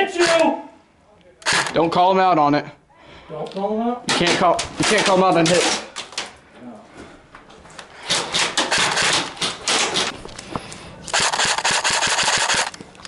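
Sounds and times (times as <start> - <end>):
airsoft gun full auto bursts: 1.4 - 1.8, 8.1 - 10.1, 11.1 - 12.8.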